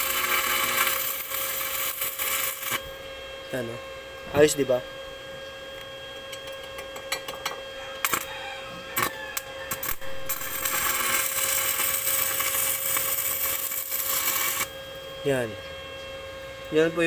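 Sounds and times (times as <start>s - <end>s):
welding arc crackling: 0.0s - 3.0s, 8.0s - 8.3s, 9.7s - 14.8s
steady hum: 0.0s - 17.0s.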